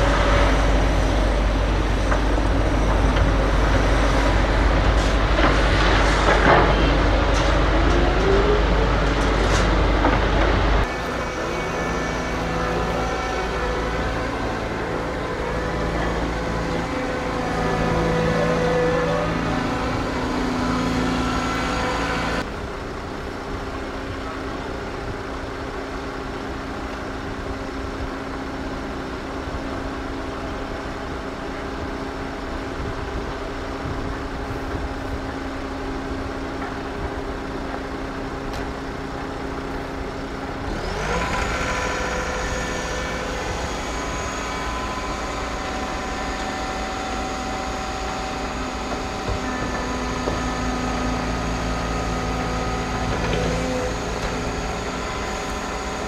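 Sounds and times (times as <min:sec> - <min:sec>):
heavy diesel engines running: 0:00.0 - 0:56.0
engine revving: 0:40.6 - 0:56.0.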